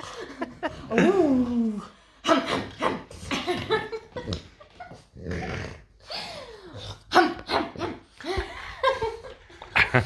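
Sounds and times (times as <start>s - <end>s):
dog growling in play: 5.0s - 6.0s.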